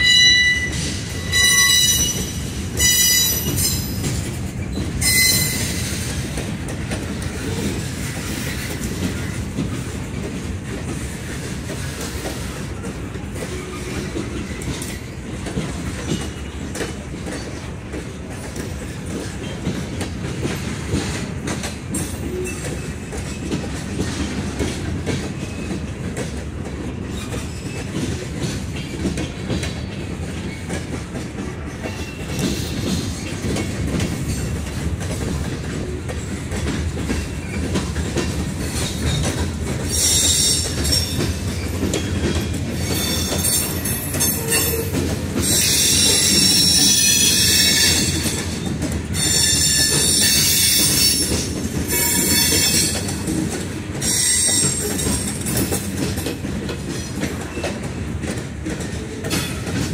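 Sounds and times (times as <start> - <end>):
high-pitched wheel squeal: 0.0 - 2.2, 5.0 - 5.8
train wheels rumbling on rail: 0.0 - 59.9.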